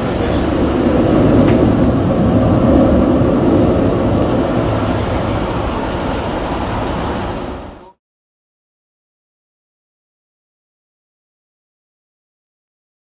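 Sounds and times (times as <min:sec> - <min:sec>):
jet airliner engine rumble: 0:00.0 - 0:08.0.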